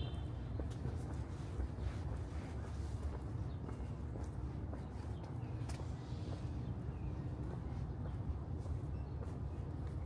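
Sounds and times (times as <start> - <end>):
low city rumble: 0.0 - 10.0
footsteps walking: 0.4 - 10.0.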